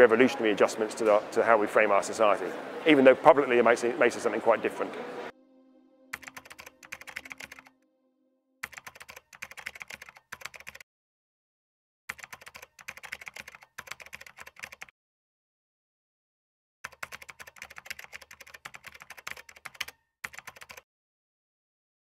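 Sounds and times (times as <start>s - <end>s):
keyboard typing clicks: 6.2s - 7.7s, 8.6s - 10.8s, 12.1s - 14.9s, 16.9s - 20.8s.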